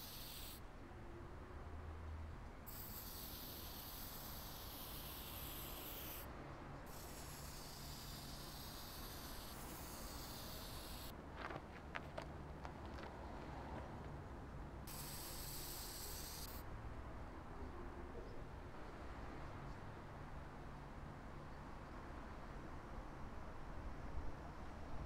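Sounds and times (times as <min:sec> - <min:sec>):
spray paint can hissing: 0:00.0 - 0:00.6, 0:02.7 - 0:06.3, 0:06.9 - 0:11.2, 0:14.9 - 0:16.6.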